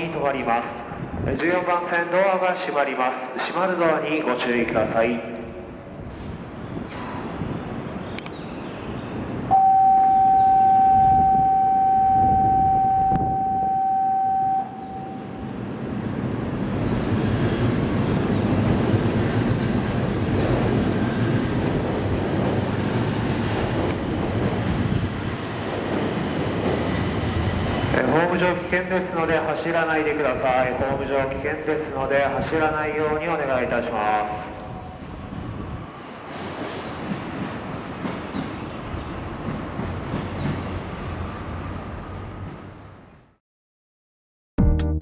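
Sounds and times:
high-speed train running: 0.0 - 43.3
loud steady tone: 9.5 - 15.5.

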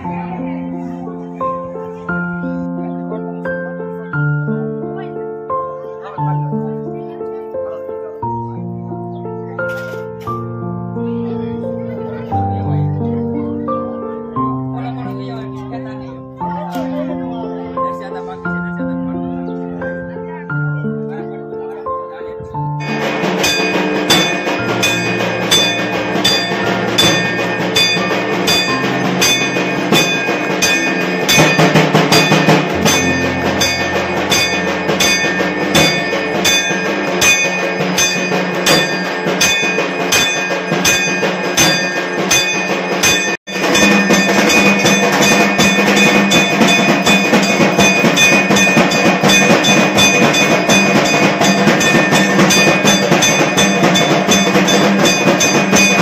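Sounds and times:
drums beating steadily: 0.0 - 21.2, 22.0 - 56.0
temple bells ringing: 22.8 - 56.0.

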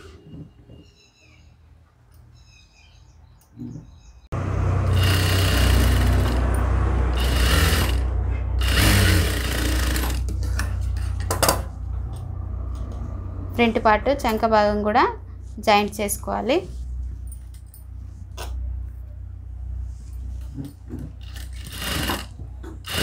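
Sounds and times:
sewing machine running: 4.6 - 10.3, 21.2 - 23.0.

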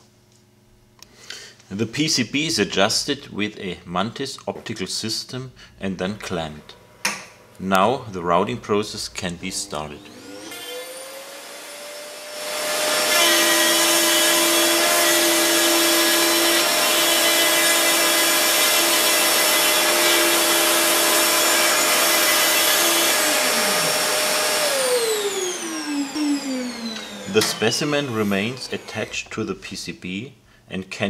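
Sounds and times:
router spindle whine: 9.9 - 29.4
router bit grinding circuit board: 10.0 - 29.5.

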